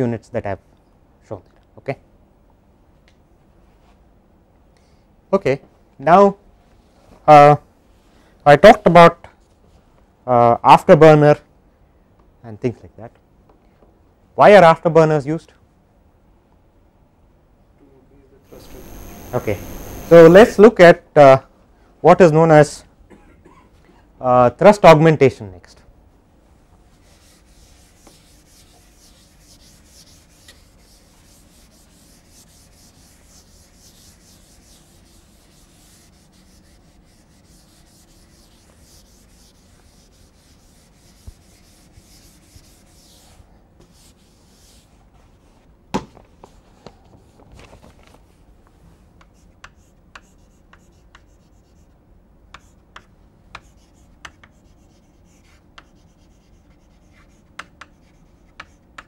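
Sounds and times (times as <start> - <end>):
duster rubbing chalkboard: 18.5 - 20.6, 26.9 - 45.1
chalk tapping and scratching: 18.6 - 20.4, 26.9 - 45.0, 49.2 - 59.0.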